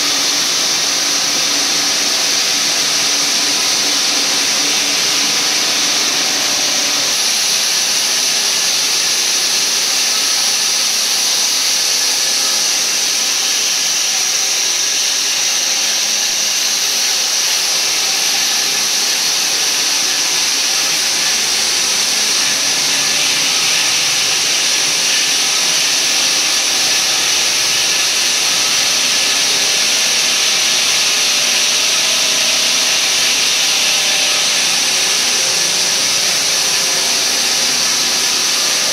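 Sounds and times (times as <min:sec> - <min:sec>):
sawing machine hissing: 0:00.0 - 0:38.9.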